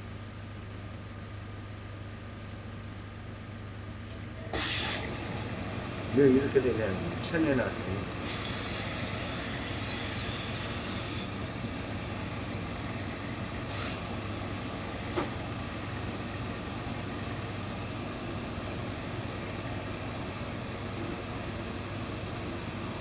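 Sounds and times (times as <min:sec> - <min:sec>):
steady low hum: 0:00.0 - 0:23.0
steam iron hissing: 0:04.5 - 0:05.3, 0:08.2 - 0:11.3, 0:13.7 - 0:15.3.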